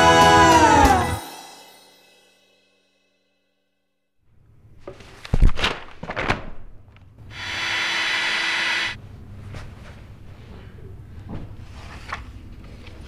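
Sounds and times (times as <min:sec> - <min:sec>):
electric air pump running: 0:07.3 - 0:09.0.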